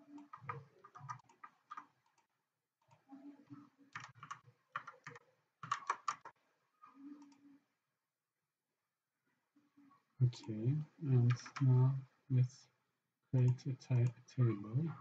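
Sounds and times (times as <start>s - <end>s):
computer keyboard typing: 0.0s - 2.3s, 3.9s - 6.4s.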